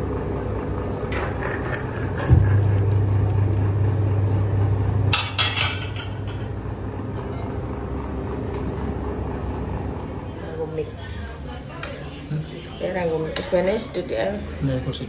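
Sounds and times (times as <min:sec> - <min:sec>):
steady low hum: 0:00.0 - 0:15.0
ladle and pot clinking on bowl: 0:05.1 - 0:06.5.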